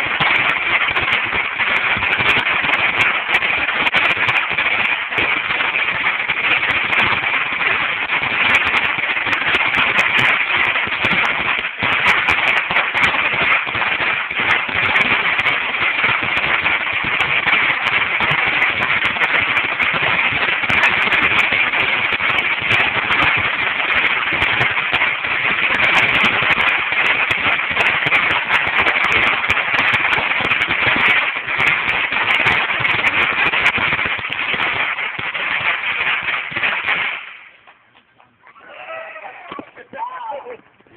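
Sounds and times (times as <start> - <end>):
firecracker strip crackling: 0.0 - 40.9.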